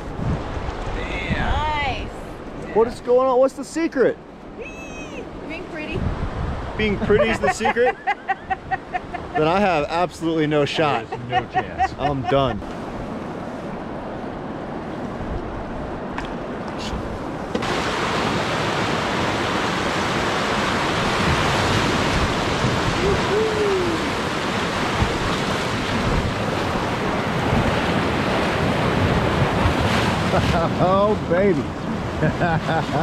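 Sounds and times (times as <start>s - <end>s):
wind on microphone: 0.0s - 2.8s, 4.9s - 9.5s, 11.1s - 32.4s
whitewater rapids rushing: 17.6s - 33.0s.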